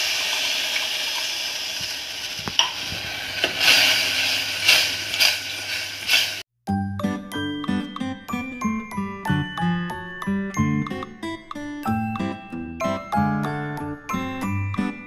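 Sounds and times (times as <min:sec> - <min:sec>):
sizzling hiss from pans: 0:00.0 - 0:06.4.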